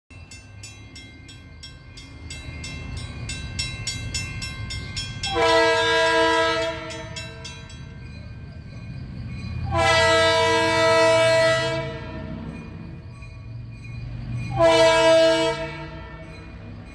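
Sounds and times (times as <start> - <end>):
crossing warning bell dinging: 0.1 - 16.9
locomotive engine rumble: 0.1 - 16.9
locomotive air horn blasts: 5.3 - 7.2, 9.7 - 12.4, 14.5 - 16.3.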